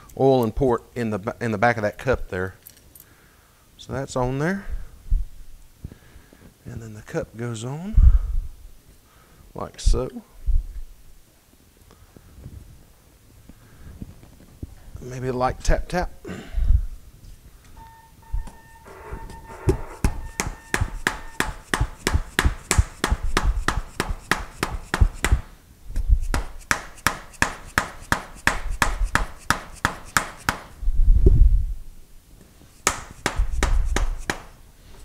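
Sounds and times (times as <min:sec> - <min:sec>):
mallet tapping metal: 0:19.7 - 0:25.4.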